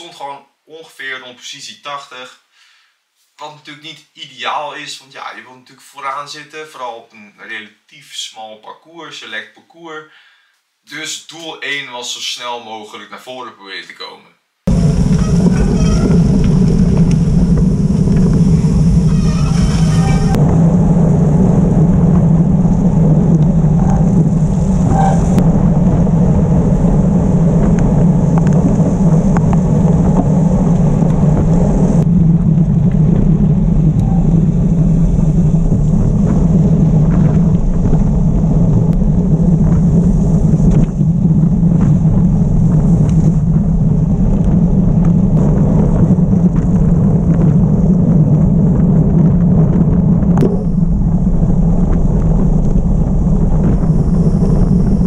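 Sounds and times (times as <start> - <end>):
high hiss: 14.7 - 20.4, 53.4 - 55.0
bike tyres rumbling on gravel: 14.7 - 55.0
wind rushing over microphone: 14.7 - 55.0.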